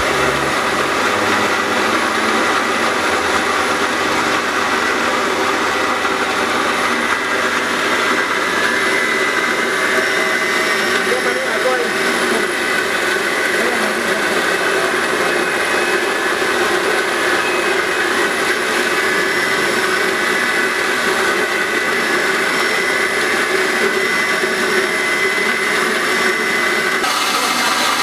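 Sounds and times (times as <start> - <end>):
grain mill whirring: 0.0 - 28.0.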